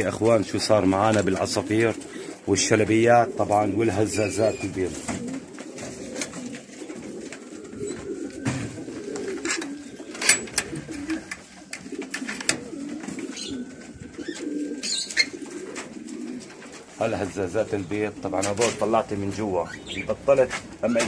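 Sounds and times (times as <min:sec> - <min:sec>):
pigeons cooing: 0:00.0 - 0:21.0
sharp clicks and knocks: 0:08.5 - 0:13.2.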